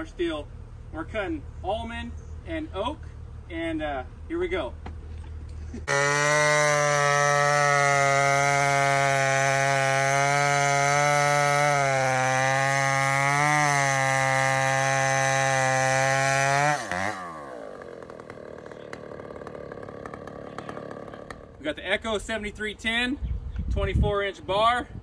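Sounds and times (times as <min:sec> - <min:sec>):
chainsaw cutting wood: 0:05.4 - 0:21.6.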